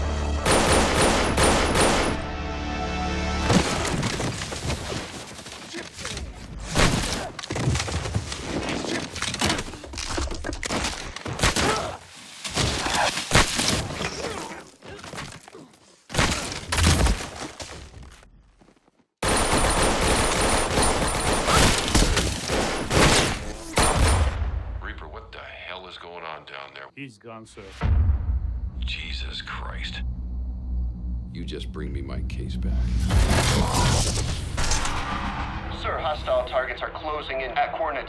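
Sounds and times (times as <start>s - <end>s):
automatic gunfire: 0.4s - 2.2s, 19.2s - 21.8s.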